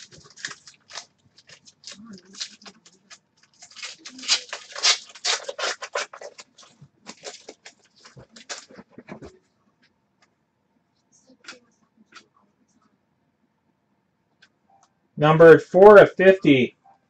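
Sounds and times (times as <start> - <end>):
wrapper tearing and crinkling: 0.0 - 8.8.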